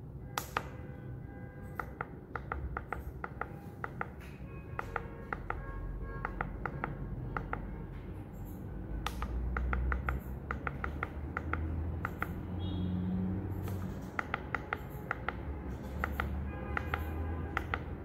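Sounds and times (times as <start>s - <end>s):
keypad beeps: 0.3s - 7.8s.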